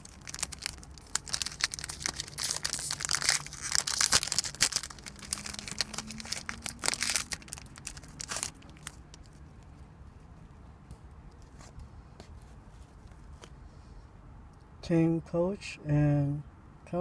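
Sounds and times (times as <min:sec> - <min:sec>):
foil wrapper crinkling: 0:00.0 - 0:09.4.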